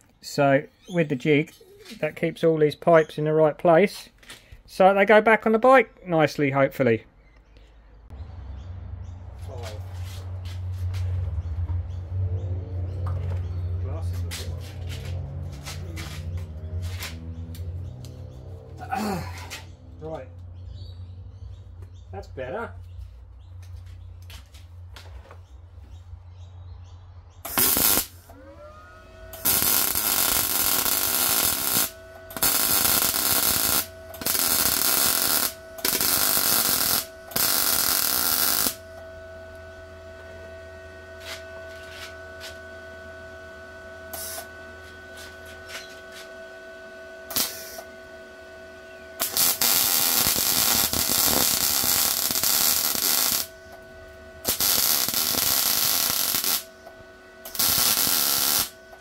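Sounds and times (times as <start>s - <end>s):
steady whine: 9.4s - 25.9s, 27.3s - 59.0s
welding arc crackling: 27.4s - 28.4s, 29.3s - 39.0s, 44.1s - 44.4s, 47.3s - 47.8s, 49.2s - 59.0s.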